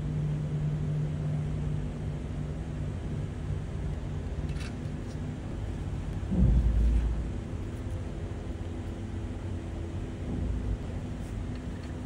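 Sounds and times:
faint hum: 0.0 - 12.0
low rumble: 6.2 - 8.0.

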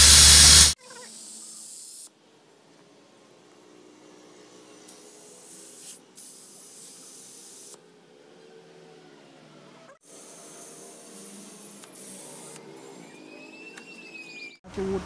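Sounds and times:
compressed air hissing: 0.0 - 2.1, 4.9 - 7.8, 10.1 - 12.6.

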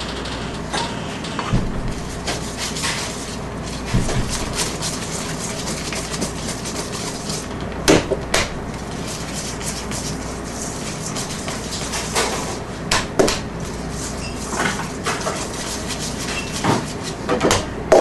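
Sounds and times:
whisk knocking bowl: 1.5 - 18.0
whisk scraping metal bowl: 1.9 - 7.5, 8.7 - 12.7, 13.6 - 17.3.

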